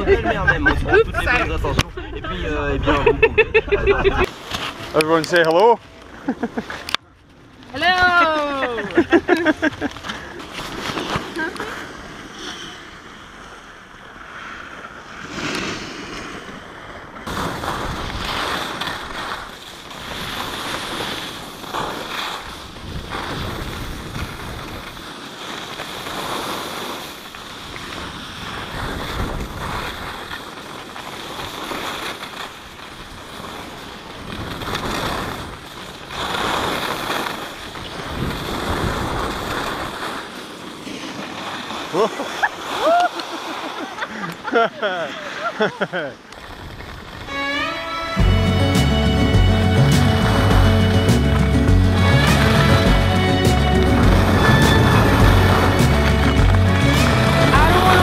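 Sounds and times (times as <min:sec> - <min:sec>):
skis scraping over snow: 0:04.0 - 0:58.0
wind buffeting microphone: 0:22.4 - 0:25.1, 0:27.4 - 0:30.4, 0:37.5 - 0:40.3, 0:51.8 - 0:58.0.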